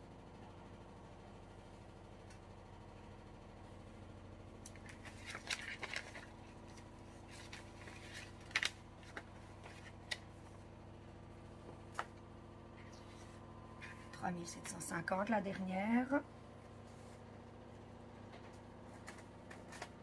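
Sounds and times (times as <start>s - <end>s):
paper rustling and sliding: 4.8s - 10.5s, 18.9s - 20.0s.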